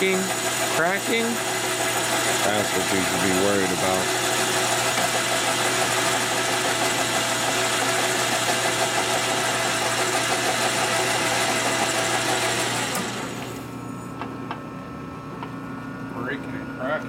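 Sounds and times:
metal lathe whirring: 0:00.0 - 0:13.8.

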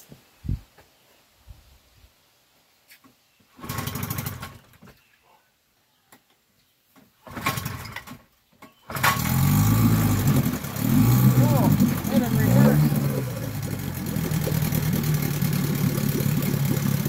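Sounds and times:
outboard motor running: 0:09.2 - 0:17.0.

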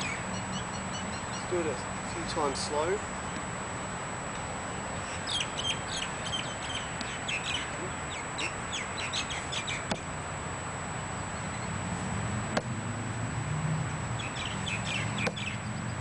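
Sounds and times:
birds chirping: 0:00.0 - 0:03.5, 0:04.8 - 0:10.0, 0:14.1 - 0:16.0
kicks slapping a foam pad: 0:15.2 - 0:15.4.

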